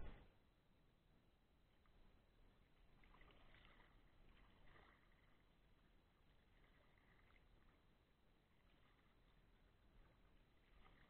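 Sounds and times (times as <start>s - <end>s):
kayak paddle strokes in water: 0.0s - 0.2s, 2.7s - 11.0s.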